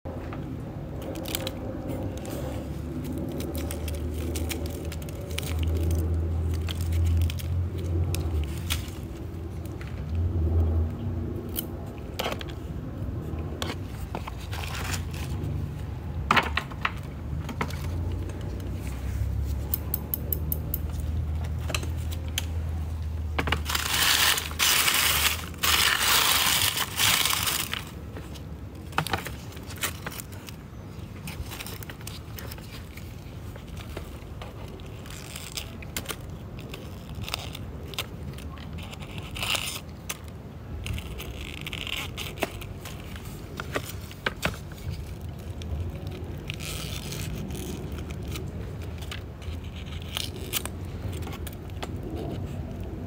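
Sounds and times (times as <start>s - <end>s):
dry leaves crackling and snapping: 0.9s - 12.6s, 21.4s - 53.0s
leaves rustling: 21.9s - 52.8s.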